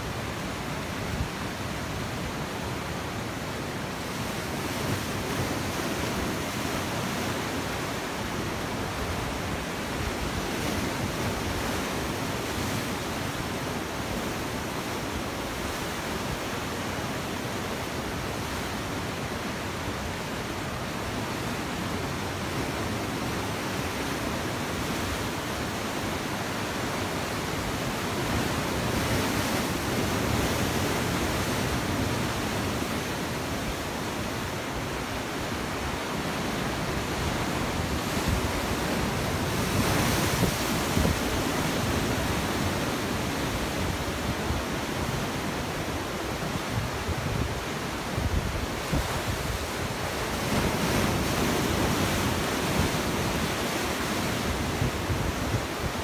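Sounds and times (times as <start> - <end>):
waves breaking over rocks: 20.8 - 56.0.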